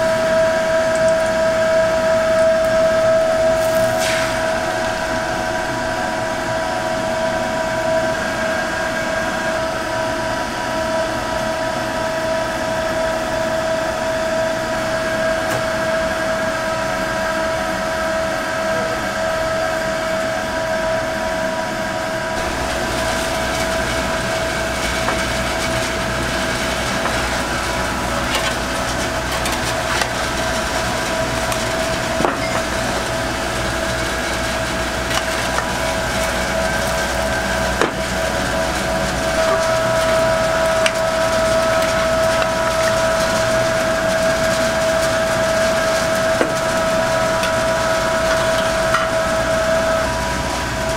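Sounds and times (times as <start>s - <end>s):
steady droning hum: 0.0s - 50.9s
egg sizzling and crackling: 22.4s - 37.8s.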